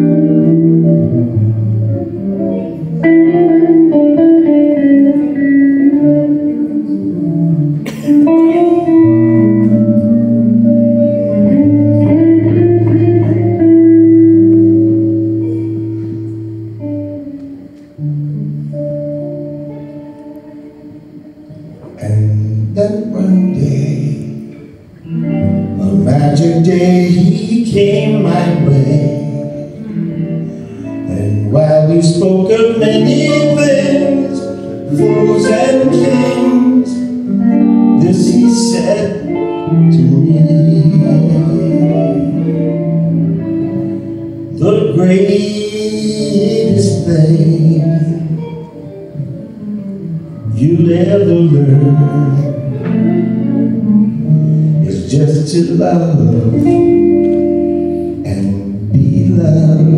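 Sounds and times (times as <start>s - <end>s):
electric guitar chords ringing: 0.0s - 59.9s
man singing: 21.8s - 24.7s, 25.5s - 29.8s, 30.4s - 43.0s, 43.8s - 49.2s, 50.3s - 53.0s, 54.3s - 57.2s, 58.1s - 59.9s.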